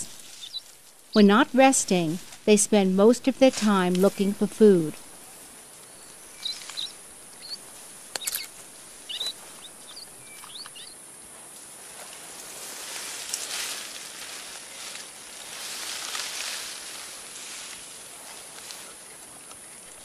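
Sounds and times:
high bird chirps: 0.4s - 0.6s, 5.9s - 7.6s, 8.2s - 11.0s
hissing rustle: 3.4s - 20.0s.

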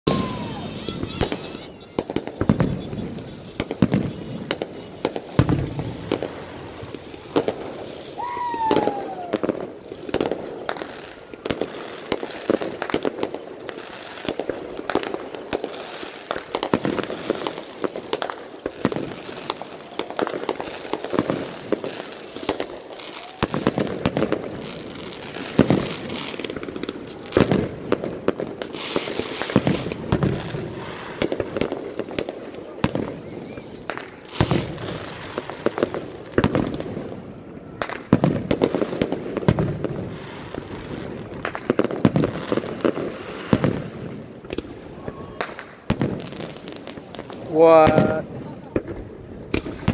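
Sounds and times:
fireworks bursting and crackling: 0.0s - 49.9s
falling whistle: 0.1s - 2.0s, 8.2s - 9.5s.

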